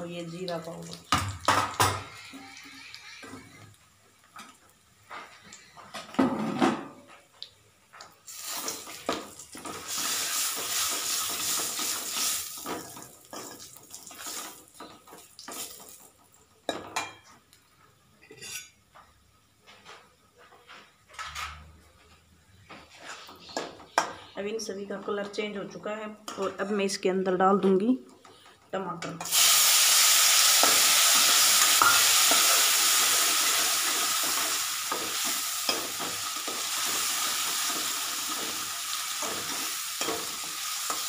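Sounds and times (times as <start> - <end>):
oil sizzling: 0.0 - 4.8, 8.2 - 16.7, 29.2 - 41.0.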